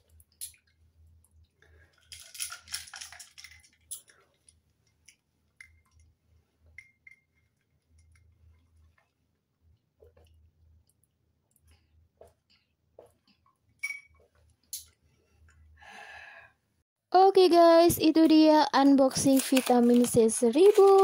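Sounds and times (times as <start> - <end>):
ice cubes clinking in cup: 2.0 - 4.1, 19.1 - 21.0.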